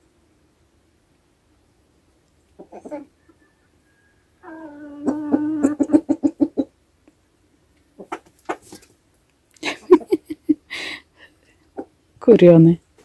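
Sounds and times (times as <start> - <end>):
hens clucking: 2.6 - 3.4, 4.4 - 6.8, 7.8 - 9.0, 11.5 - 12.0.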